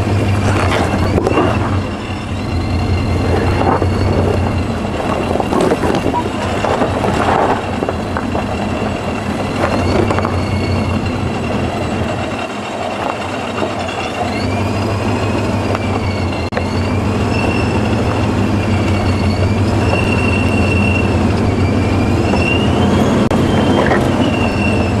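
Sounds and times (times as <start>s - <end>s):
high thin squeal: 0.0s - 6.4s, 9.5s - 12.2s, 13.6s - 25.0s
off-road vehicle engine running low: 0.0s - 25.0s
tyres grinding over rock: 0.3s - 14.7s.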